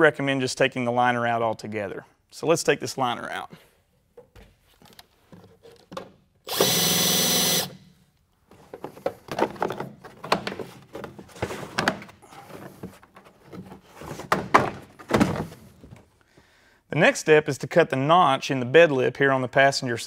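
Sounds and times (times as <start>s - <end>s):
rustling and scraping of liner: 3.7s - 6.0s, 8.4s - 16.2s
cordless drill spinning: 6.5s - 7.8s.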